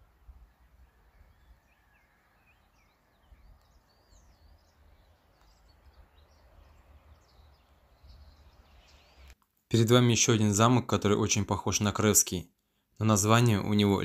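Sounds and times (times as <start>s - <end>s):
faint birdsong chirping: 0.0s - 14.0s.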